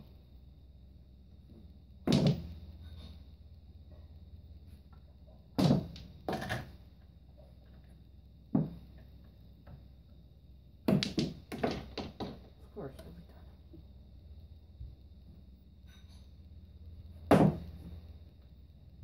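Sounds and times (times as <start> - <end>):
pool balls knocking: 2.0 - 2.8, 5.5 - 6.8, 8.5 - 9.8, 10.8 - 12.6, 17.2 - 18.0.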